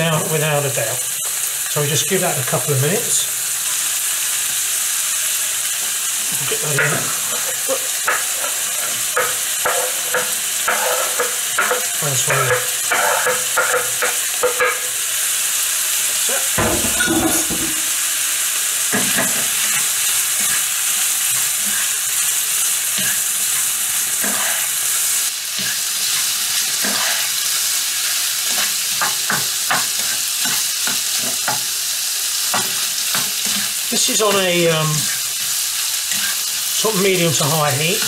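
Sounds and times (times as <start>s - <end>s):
food sizzling in oil: 0.0s - 38.0s
spoon scraping and tapping wok: 6.7s - 15.0s, 18.9s - 31.8s, 32.5s - 34.4s, 35.1s - 36.7s.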